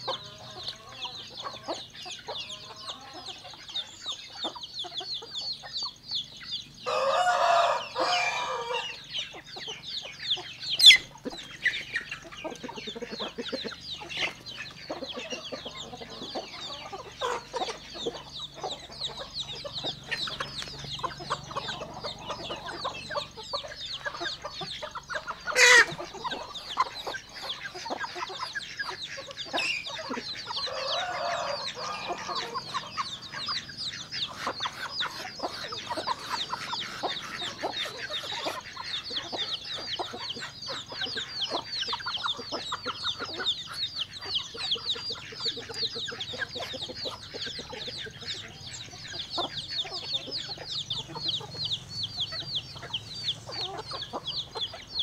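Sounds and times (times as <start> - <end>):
chickens clucking: 0.0 - 55.0
rooster crowing: 6.8 - 9.1, 30.4 - 32.8.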